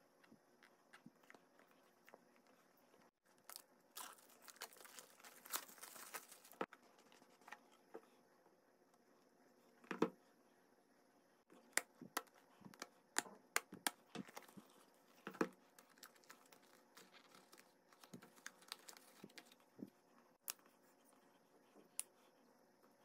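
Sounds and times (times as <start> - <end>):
paper packaging rustling: 3.5 - 7.6, 14.2 - 19.6.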